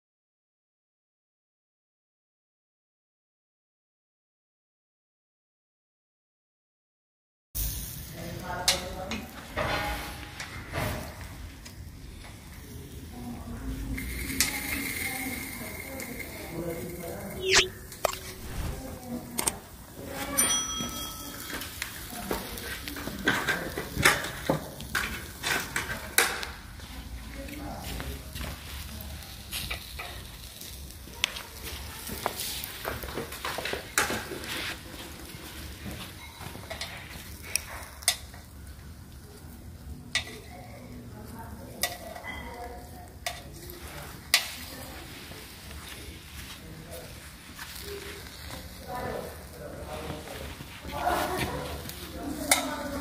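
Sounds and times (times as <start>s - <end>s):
metal skewers clinking on grill: 20.1s - 25.9s, 36.0s - 38.5s, 40.1s - 40.5s, 41.8s - 43.7s.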